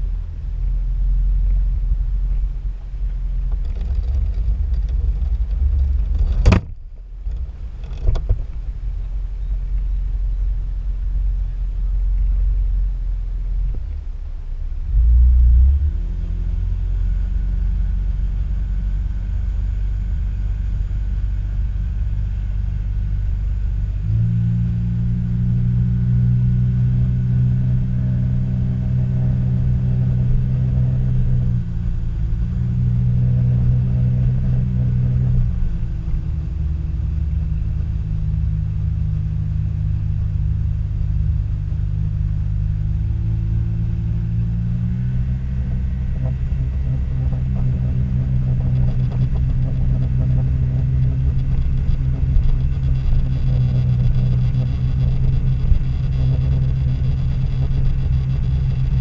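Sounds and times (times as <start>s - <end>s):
low rumble of water and wind: 0.0s - 59.0s
short low thump: 2.4s - 8.7s
small boat motor running: 25.0s - 59.0s.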